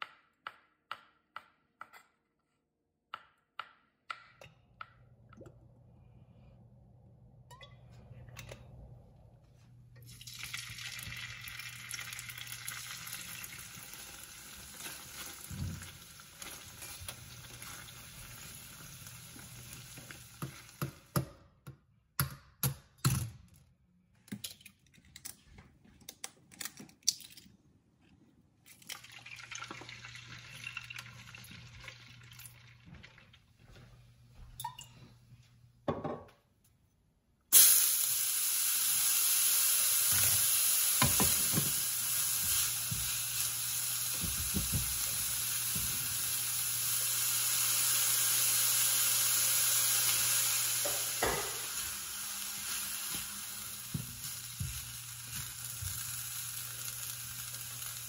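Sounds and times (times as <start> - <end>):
shrimp sizzling in hot oil: 10.1 - 21.1, 37.6 - 58.0.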